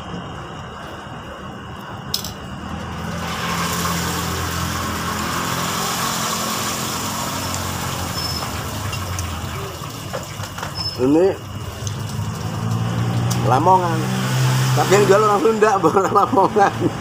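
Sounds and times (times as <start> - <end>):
loud rushing hiss: 3.0 - 8.2
low engine hum: 11.4 - 17.0.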